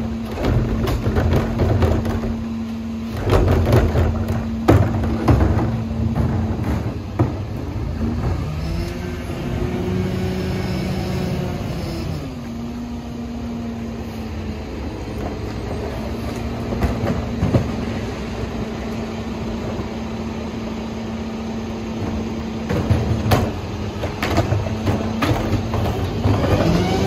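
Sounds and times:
garbage truck engine and hydraulics: 0:00.0 - 0:27.0
trash clattering into hopper: 0:00.1 - 0:08.6, 0:15.2 - 0:18.0, 0:22.0 - 0:27.0.

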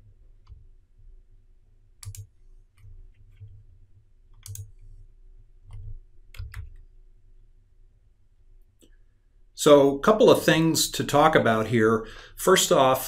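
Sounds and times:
faint low hum: 0:00.0 - 0:13.0
computer mouse clicking: 0:02.0 - 0:03.6, 0:04.3 - 0:05.0, 0:05.6 - 0:06.9.

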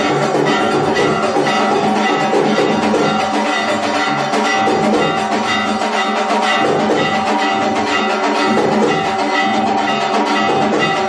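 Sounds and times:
bells and metal percussion clanging: 0:00.0 - 0:11.0
drums beating: 0:00.0 - 0:11.0.

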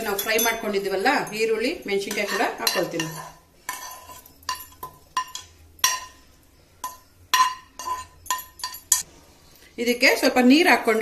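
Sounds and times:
steel spoon scraping a pan: 0:00.0 - 0:09.1.

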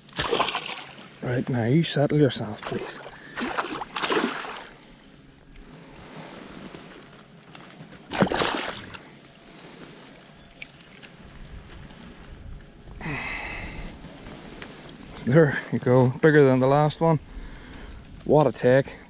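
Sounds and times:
fish thrashing and splashing in water: 0:00.0 - 0:01.2, 0:02.6 - 0:04.8, 0:08.0 - 0:09.1
quiet water noise: 0:00.0 - 0:19.0.

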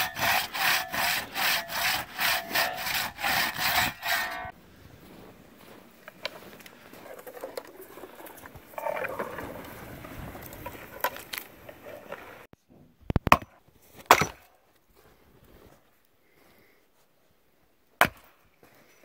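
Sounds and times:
axe splitting firewood: 0:00.0 - 0:04.5, 0:13.2 - 0:14.5
sled dragging over snow: 0:04.5 - 0:12.5.

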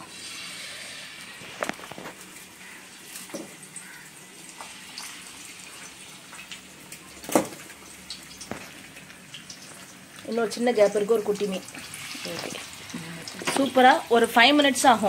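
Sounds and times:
fish sizzling in oil: 0:00.0 - 0:15.0
oil popping and spattering: 0:01.4 - 0:03.8, 0:06.3 - 0:10.4.

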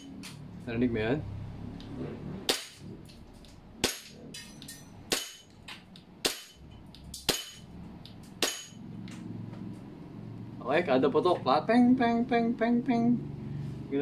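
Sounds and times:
pellet pinging metal plate: 0:03.8 - 0:05.5, 0:06.2 - 0:06.6, 0:07.2 - 0:07.7, 0:08.4 - 0:08.8.

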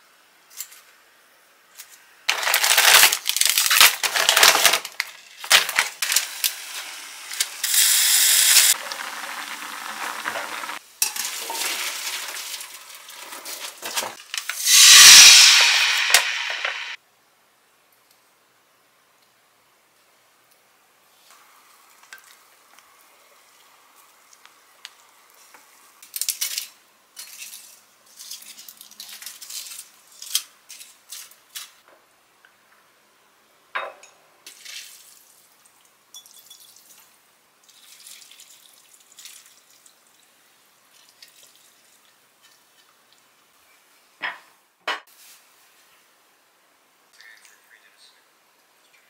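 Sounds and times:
rice paper crackling: 0:02.3 - 0:07.6, 0:08.7 - 0:14.2
dishes clinking: 0:33.8 - 0:34.2.

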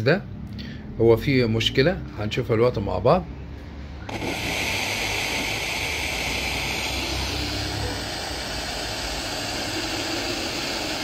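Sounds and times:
radio static hiss: 0:04.1 - 0:11.0.

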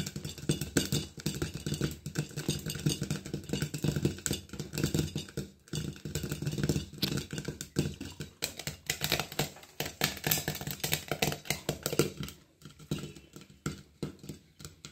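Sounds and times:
grains popping in a pan: 0:00.0 - 0:14.9.

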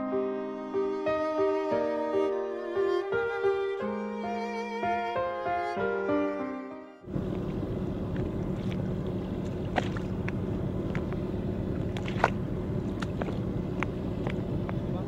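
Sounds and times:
violin music: 0:00.0 - 0:07.1
boat engine rumbling: 0:03.9 - 0:15.0.

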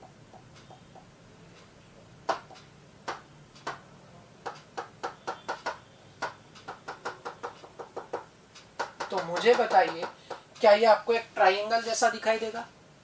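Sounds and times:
taps on glass screen: 0:00.0 - 0:01.7, 0:02.3 - 0:10.7.

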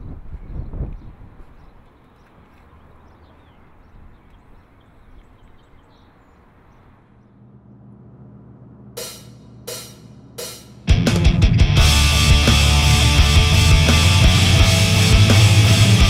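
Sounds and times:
steady low hum: 0:06.2 - 0:16.0
sharp drum hit: 0:09.0 - 0:16.0.

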